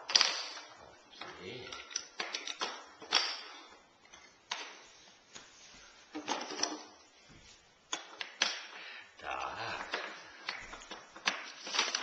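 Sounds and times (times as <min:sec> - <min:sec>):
wooden track pieces clacking: 0:00.0 - 0:04.8, 0:09.8 - 0:12.0
wooden toy track pieces knocking: 0:01.2 - 0:03.5.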